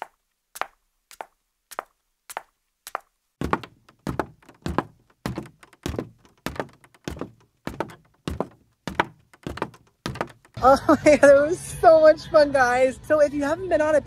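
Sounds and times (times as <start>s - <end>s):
footsteps on hard floor: 0.6s - 10.6s.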